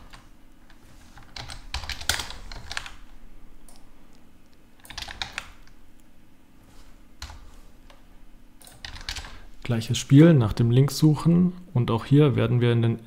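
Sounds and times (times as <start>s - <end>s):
computer keyboard typing: 0.0s - 3.1s, 4.8s - 5.8s, 7.2s - 8.0s, 8.6s - 9.4s.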